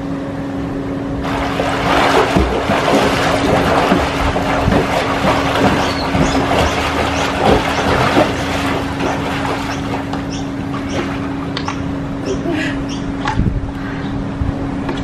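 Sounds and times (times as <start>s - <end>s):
low hum: 0.0s - 15.0s
swimmer splashing water: 1.2s - 12.1s.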